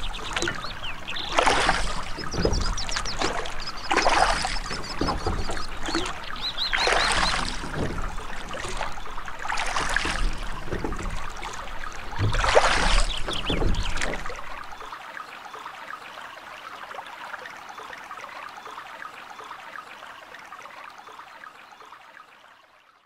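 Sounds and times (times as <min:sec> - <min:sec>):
small birds chirping: 0:00.0 - 0:14.9
water surging in swells: 0:00.0 - 0:22.9.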